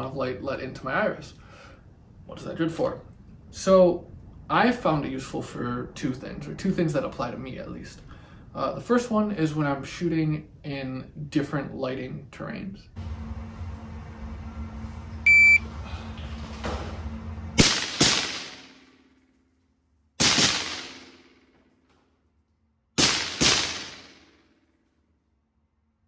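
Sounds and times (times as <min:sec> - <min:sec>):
low hum: 0:12.8 - 0:22.6
short electronic beep: 0:15.2 - 0:15.7
gunshots echoing indoors: 0:17.6 - 0:19.2, 0:20.2 - 0:21.7, 0:23.0 - 0:24.5.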